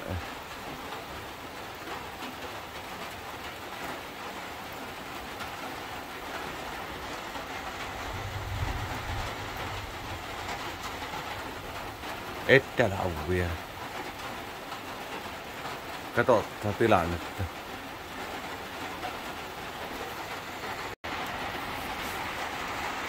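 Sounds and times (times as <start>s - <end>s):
steady rain falling: 0.0s - 23.0s
low rumble: 7.9s - 11.9s.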